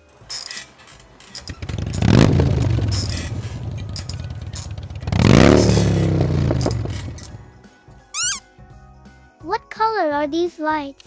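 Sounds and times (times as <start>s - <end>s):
motor humming and revving: 1.7s - 3.9s, 5.0s - 7.4s.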